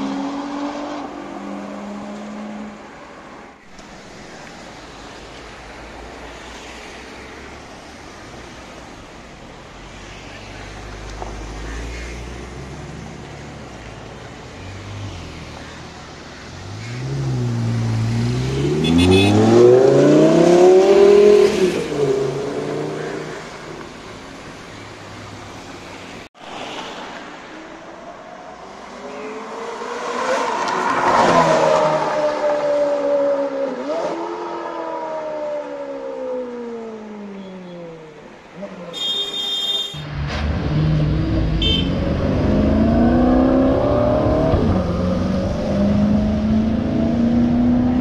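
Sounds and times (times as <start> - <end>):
street traffic noise: 0.0 - 48.0
car engines accelerating hard: 16.4 - 23.9, 40.1 - 48.0.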